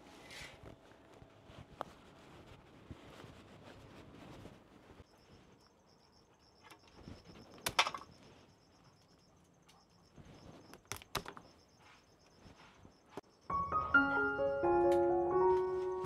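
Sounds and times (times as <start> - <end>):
insect chirping: 5.0 - 15.4.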